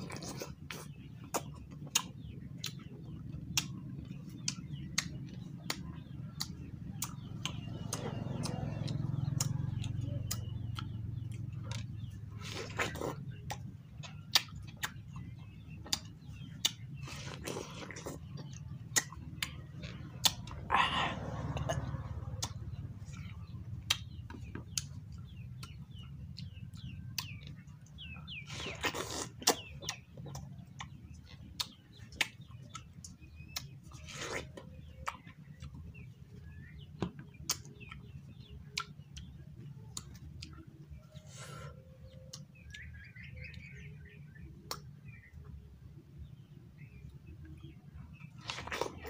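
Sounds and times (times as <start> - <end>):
wet chewing clicks: 0.0 - 45.6, 46.3 - 49.0
faint bird chirps: 0.0 - 49.0
juicy bites and slurps: 28.4 - 30.0.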